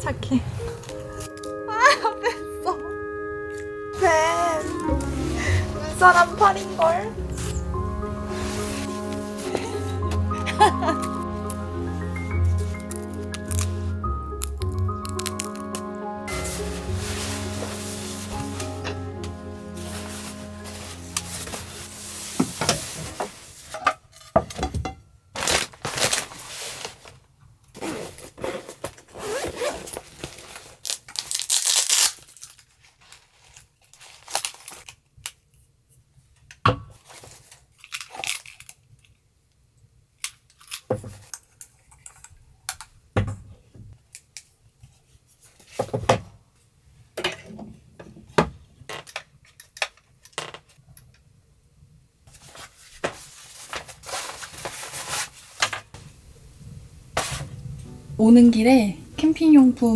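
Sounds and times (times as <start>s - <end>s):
jacket fabric rustling: 3.3s - 14.3s, 15.1s - 23.8s, 25.4s - 27.2s, 27.8s - 32.1s
small objects clicking and knocking: 37.7s - 39.2s.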